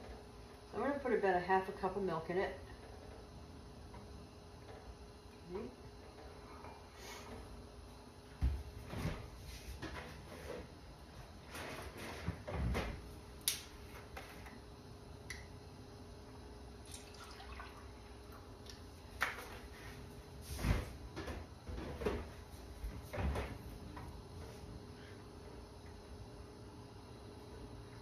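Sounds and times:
milk pouring into a cup: 16.8s - 18.0s.

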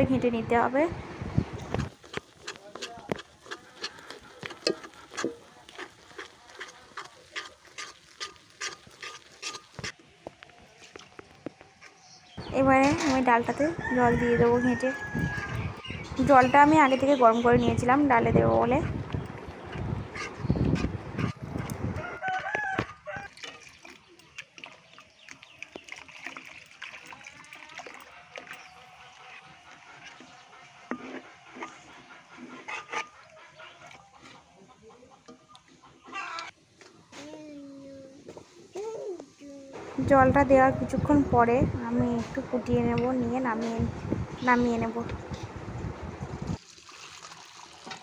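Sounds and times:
water pouring and splashing: 1.5s - 10.0s, 22.6s - 31.9s, 46.2s - 48.0s
spatula scraping a pan: 2.1s - 10.0s, 28.4s - 34.5s.

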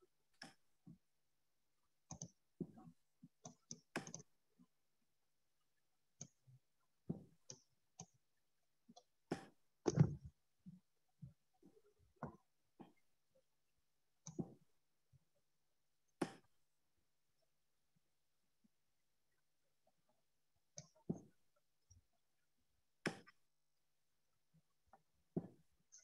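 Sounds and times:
computer mouse clicks: 2.1s - 2.4s, 3.4s - 4.3s.

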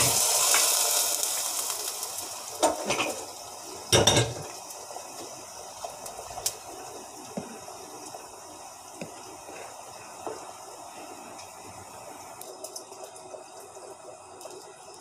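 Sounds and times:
gravy bubbling in a pot: 0.0s - 15.0s
wooden spoon stirring: 9.0s - 10.6s.

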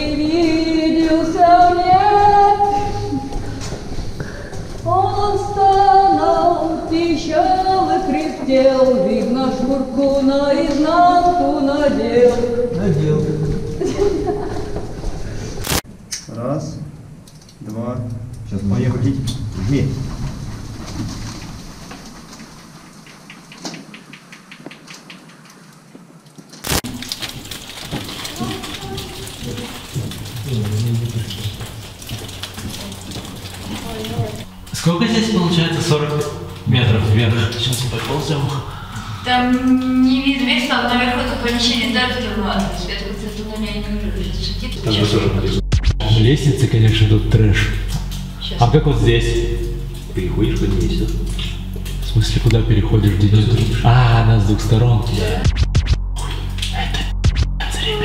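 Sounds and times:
sparks crackling: 15.6s - 16.2s, 19.4s - 38.6s, 47.8s - 48.7s, 49.7s - 52.6s.

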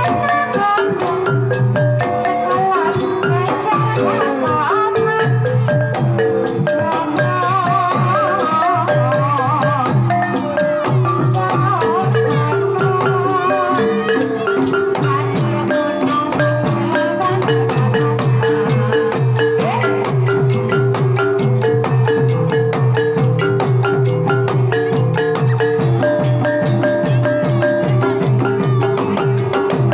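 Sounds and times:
gamelan metallophones and gongs: 0.0s - 29.9s
person singing: 2.0s - 20.7s.

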